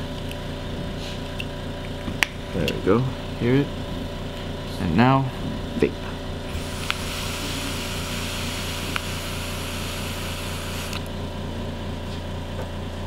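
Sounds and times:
vaporizer coils sizzling: 0:06.4 - 0:11.3
air rushing hiss: 0:06.5 - 0:11.0.

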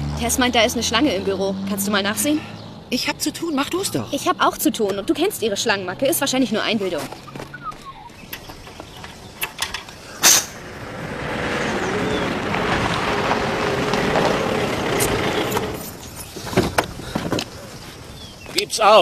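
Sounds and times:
engine running: 0:08.2 - 0:16.2.

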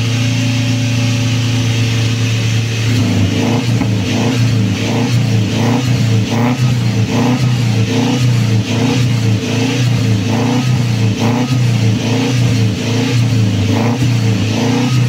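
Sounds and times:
car engine revving at exhaust: 0:00.0 - 0:15.0.

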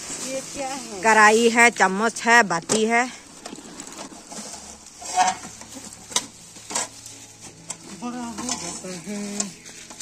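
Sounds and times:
plastic bag crinkling and rustling: 0:03.0 - 0:10.0.

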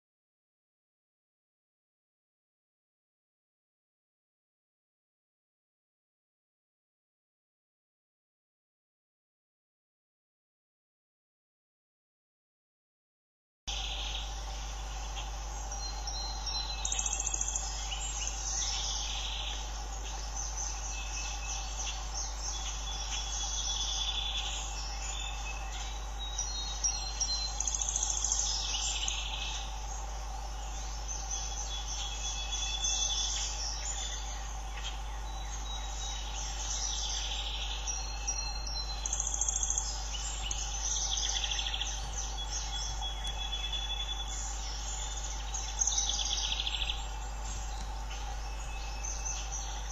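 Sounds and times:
insects calling: 0:13.7 - 0:49.9
small birds singing: 0:13.7 - 0:49.9
steady low hum: 0:13.7 - 0:49.9.

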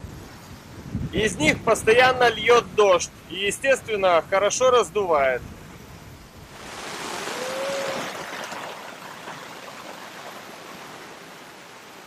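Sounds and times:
wind: 0:00.0 - 0:12.0
sea water rushing past yacht: 0:05.3 - 0:12.0.

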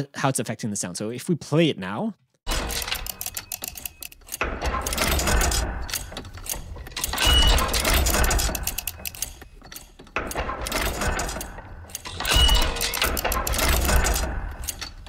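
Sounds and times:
mechanical clicking and clanking: 0:02.5 - 0:15.0.

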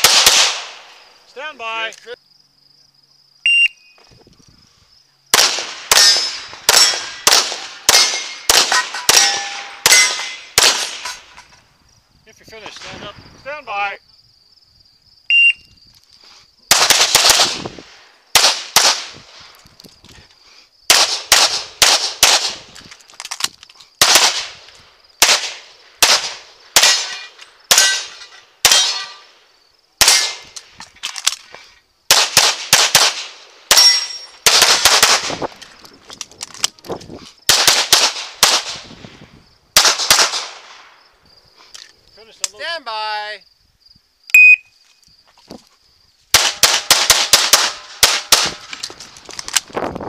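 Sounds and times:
rapid pistol fire: 0:00.0 - 0:00.8, 0:05.3 - 0:11.0, 0:16.7 - 0:17.8, 0:18.4 - 0:19.2, 0:20.9 - 0:22.7, 0:24.0 - 0:24.6, 0:25.2 - 0:27.1, 0:32.1 - 0:35.4, 0:37.5 - 0:38.9, 0:39.8 - 0:40.8, 0:46.3 - 0:48.6
bullets ringing off steel targets: 0:05.9 - 0:11.3, 0:33.7 - 0:34.4.

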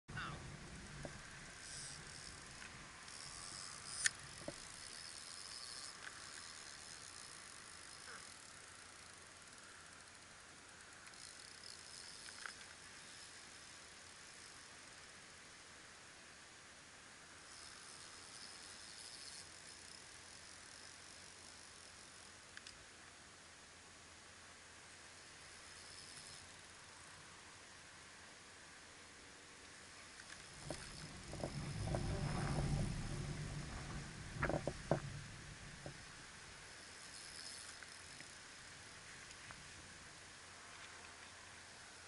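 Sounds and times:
faint high insect chirring: 0:00.1 - 0:42.0
faint outdoor hiss: 0:00.1 - 0:42.0.

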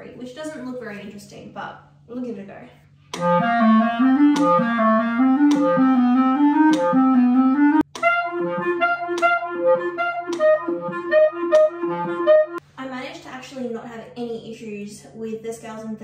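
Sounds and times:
clarinet playing: 0:03.2 - 0:12.6
metronome ticking: 0:03.2 - 0:12.6.

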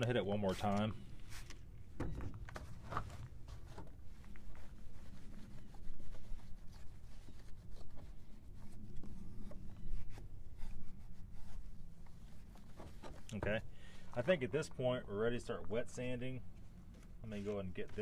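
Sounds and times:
cloth wiping plastic lens: 0:00.1 - 0:01.8, 0:02.6 - 0:13.3.

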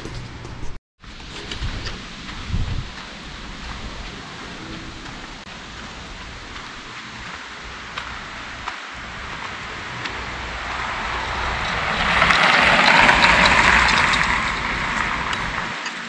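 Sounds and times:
vehicle passing by: 0:03.6 - 0:15.9.

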